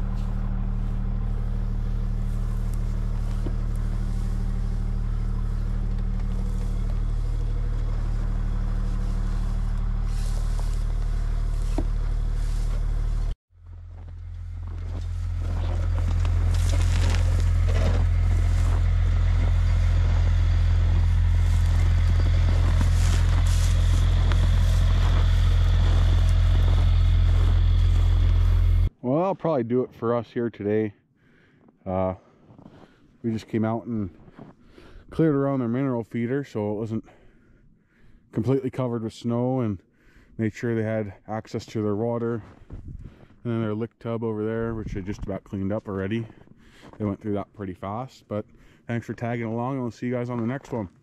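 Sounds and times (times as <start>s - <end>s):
hay rustling and scraping: 0.0s - 13.3s, 14.3s - 28.8s
utility vehicle engine idling: 0.0s - 28.9s.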